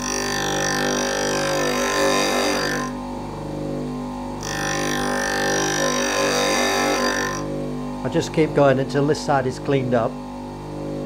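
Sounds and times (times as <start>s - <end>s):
drill bit grinding on wheel: 0.0s - 3.0s, 4.4s - 7.6s
bench grinder running: 0.0s - 11.0s.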